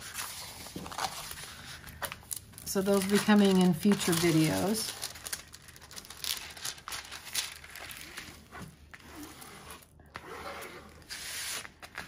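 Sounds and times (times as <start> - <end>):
plastic film crinkling: 0.0 - 8.5.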